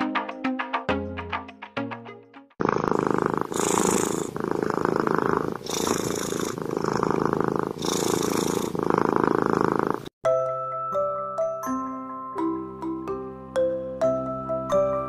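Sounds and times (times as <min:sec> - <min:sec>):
cat purring: 0:02.6 - 0:10.1.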